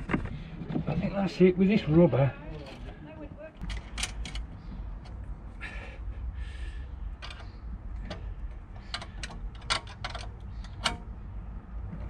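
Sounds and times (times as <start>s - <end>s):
sharp metal clicks and knocks: 3.6s - 5.2s, 7.1s - 11.2s.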